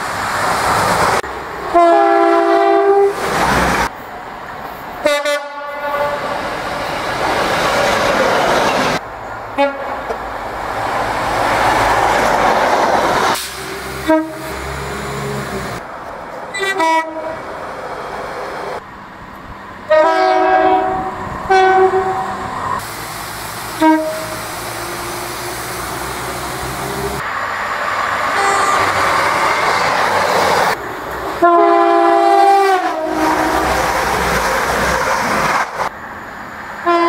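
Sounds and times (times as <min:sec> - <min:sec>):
passing train rumble: 0:00.0 - 0:37.0
train horn blasts: 0:01.7 - 0:03.2, 0:05.0 - 0:06.3, 0:09.6 - 0:10.1, 0:14.0 - 0:14.7, 0:16.5 - 0:17.4, 0:19.9 - 0:22.2, 0:23.7 - 0:24.5, 0:28.3 - 0:29.0, 0:31.4 - 0:33.7.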